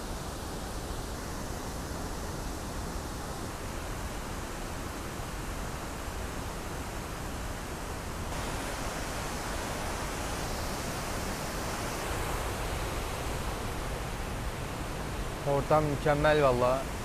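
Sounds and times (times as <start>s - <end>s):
running water rushing: 0.0s - 17.0s.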